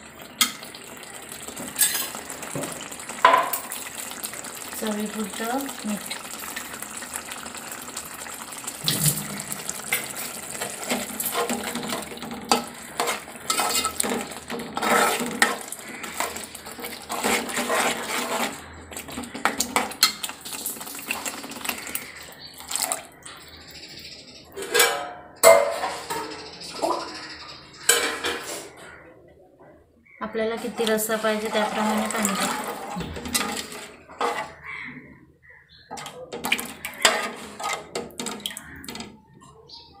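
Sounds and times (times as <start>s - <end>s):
water pouring into a pot: 0.0s - 23.6s, 30.6s - 34.9s, 35.9s - 39.2s
ladle scraping and clinking in pot: 1.8s - 2.2s, 9.8s - 20.3s, 24.6s - 26.3s, 30.6s - 34.7s, 35.9s - 39.1s.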